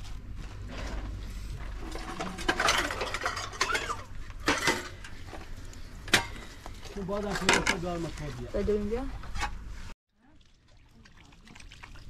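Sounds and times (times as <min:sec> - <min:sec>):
dishes and utensils clattering: 0:01.8 - 0:05.2.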